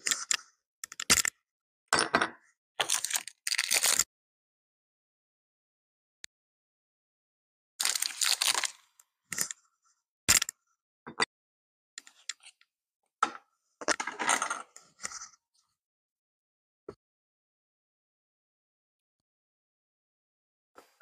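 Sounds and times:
wrapper crinkling: 0:02.8 - 0:04.0, 0:07.8 - 0:08.8
chocolate cracking: 0:02.8 - 0:04.1, 0:07.8 - 0:09.6
plastic rustling: 0:07.8 - 0:08.8.

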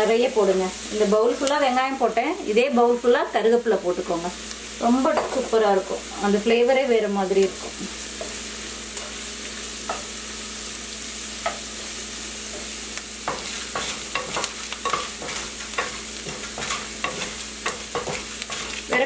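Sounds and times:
onion sizzling in a pan: 0:00.0 - 0:19.0
wooden spatula scraping and tapping: 0:12.5 - 0:19.0.

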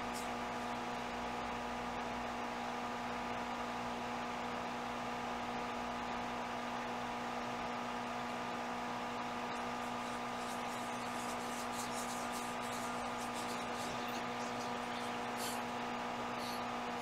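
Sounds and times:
constant hiss: 0:00.0 - 0:01.5, 0:09.4 - 0:17.0
electrical hum with fixed tones: 0:00.0 - 0:17.0.

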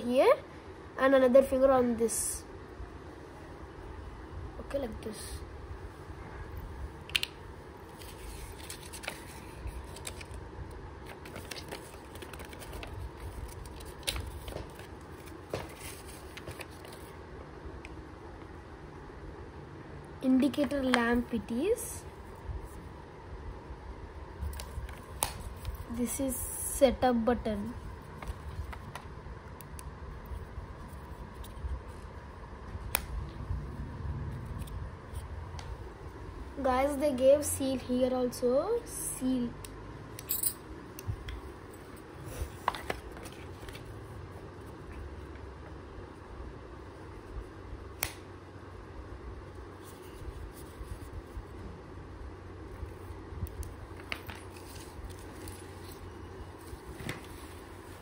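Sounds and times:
paper rustling and crinkling: 0:07.9 - 0:17.2, 0:42.2 - 0:44.0, 0:53.9 - 0:58.0.

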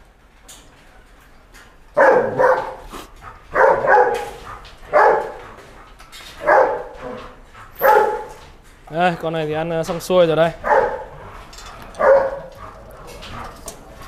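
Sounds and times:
dog barking: 0:02.0 - 0:05.6, 0:06.4 - 0:07.2, 0:07.8 - 0:08.5, 0:10.6 - 0:11.2, 0:11.9 - 0:13.6.

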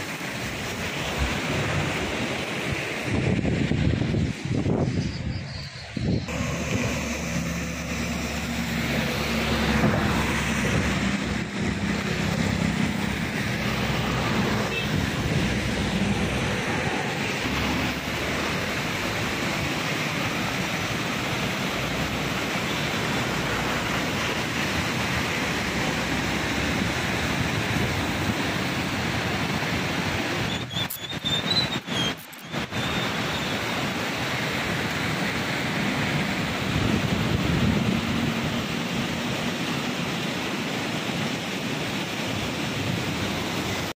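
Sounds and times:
flooded river roaring: 0:00.0 - 0:43.9
vehicle passing: 0:06.3 - 0:18.7.

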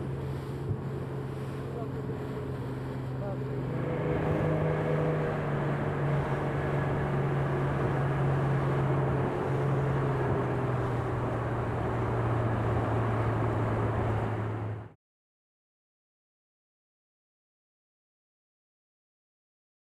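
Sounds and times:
motorboat engine droning: 0:00.0 - 0:15.0
wind and water rushing: 0:00.0 - 0:15.0.

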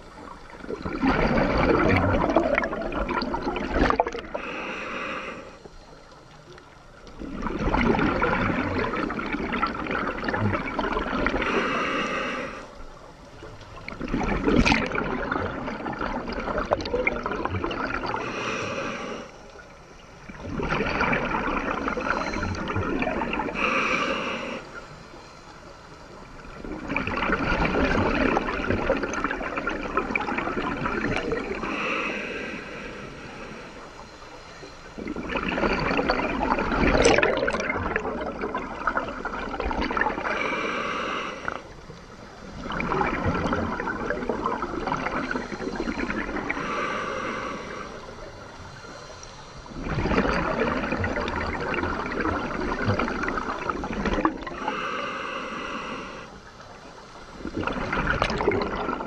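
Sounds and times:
underwater exhaled bubbles gurgling: 0:00.0 - 0:59.0
regulator inhale hiss: 0:04.3 - 0:06.7, 0:11.3 - 0:13.4, 0:18.0 - 0:20.2, 0:23.4 - 0:26.3, 0:31.4 - 0:35.1, 0:40.2 - 0:42.4, 0:45.2 - 0:49.8, 0:54.5 - 0:57.4.

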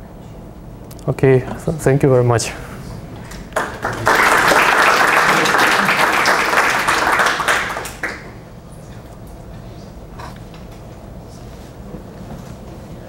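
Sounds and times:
audience applauding: 0:03.2 - 0:08.5.

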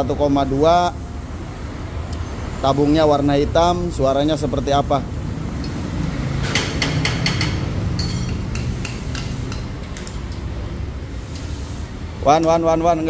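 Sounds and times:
metal tool clicks and taps: 0:06.4 - 0:10.5.

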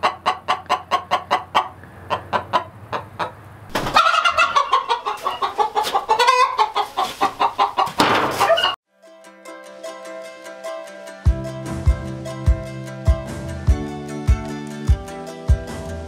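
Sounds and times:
hen clucking and cackling: 0:00.0 - 0:08.8.

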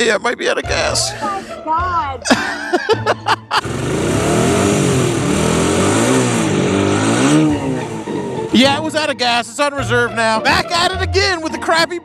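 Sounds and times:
motorcycle engine revving: 0:03.5 - 0:09.1.

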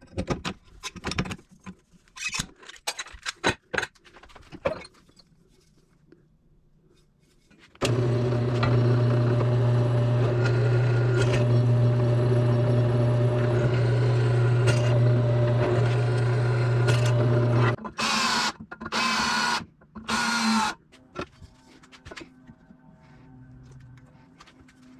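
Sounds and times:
electric motor humming: 0:07.8 - 0:17.8.

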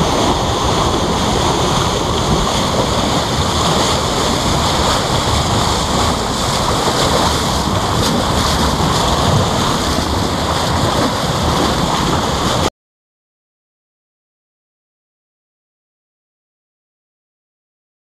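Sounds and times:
water rushing along boat hull: 0:00.0 - 0:12.7
wind buffeting microphone: 0:00.0 - 0:12.7.

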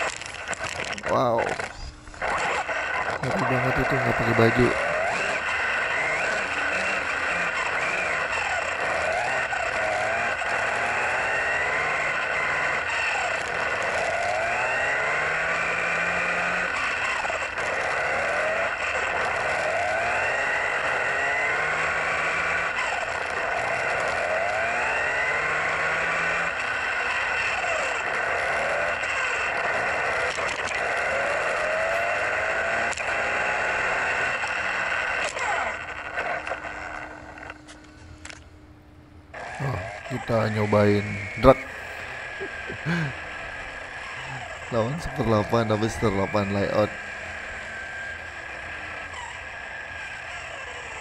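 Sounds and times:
tyre hiss and rumble on asphalt: 0:00.0 - 0:38.4
rc car motor whine: 0:00.0 - 0:51.0.

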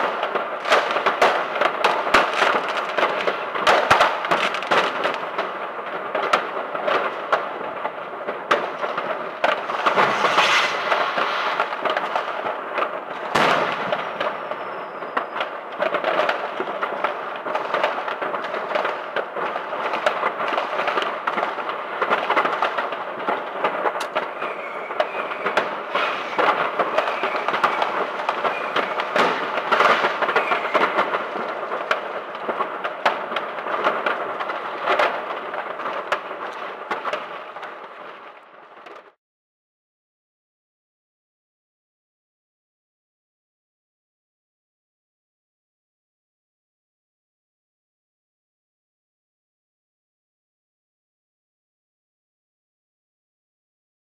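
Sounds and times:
fireworks bangs: 0:00.0 - 0:39.2
fireworks crackling and popping: 0:00.0 - 0:39.2.

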